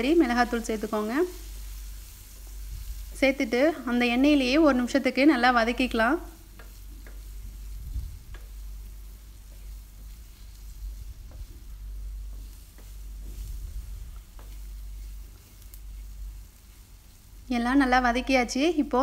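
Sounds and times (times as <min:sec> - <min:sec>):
food sizzling in oil: 0:00.0 - 0:19.0
wooden spatula scraping a pan: 0:05.9 - 0:16.9.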